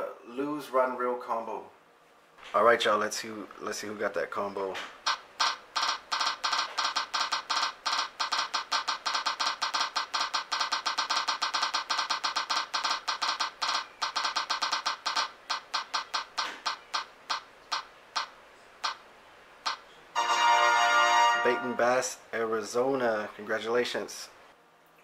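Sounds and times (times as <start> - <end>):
electronic ticks of spinning wheel: 5.1 - 19.0.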